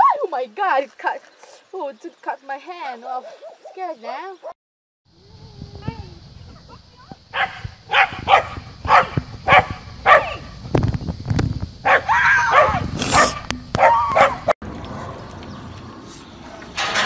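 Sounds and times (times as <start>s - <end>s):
dog barking: 3.2s - 4.6s, 7.3s - 10.5s, 11.8s - 14.6s
dog wavering cries: 11.9s - 14.5s.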